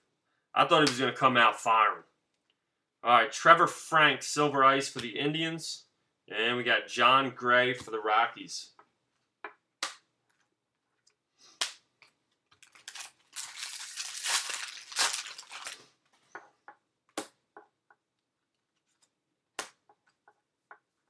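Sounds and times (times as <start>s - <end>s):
cards snapping against cards: 9.8s - 10.4s, 19.6s - 19.8s.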